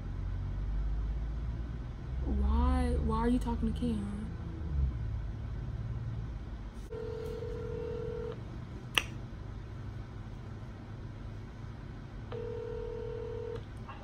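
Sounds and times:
phone ringback tone: 0:06.9 - 0:08.4, 0:12.4 - 0:13.6
sharp click: 0:09.0 - 0:09.2.

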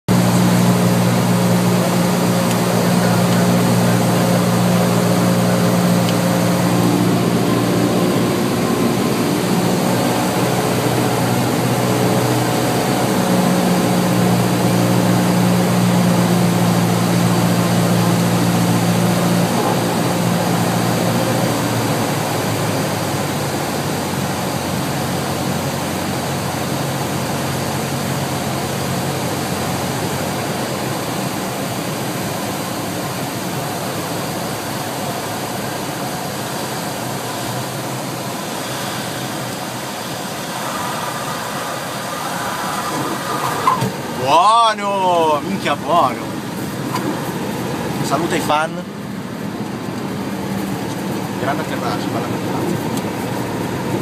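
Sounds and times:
propeller aircraft engine droning: 0:00.1 - 0:54.0
rush of airflow: 0:37.4 - 0:44.3.

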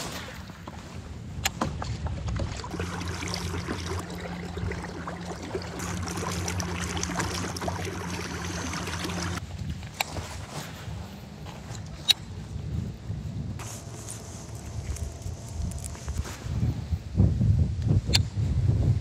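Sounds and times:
steady low motor hum: 0:02.6 - 0:17.8
rustling noise: 0:09.4 - 0:17.6.

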